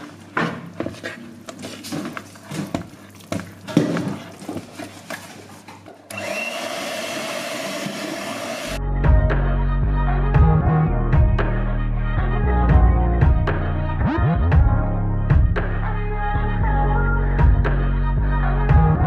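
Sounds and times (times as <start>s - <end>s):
hand mixer motor humming: 6.1s - 8.8s.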